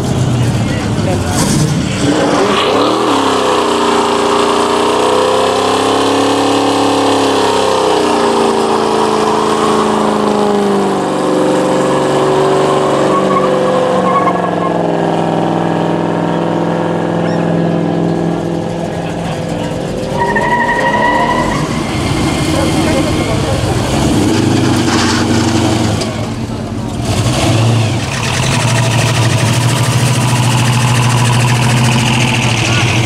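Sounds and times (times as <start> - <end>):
engine revving during burnout: 1.2 - 33.0.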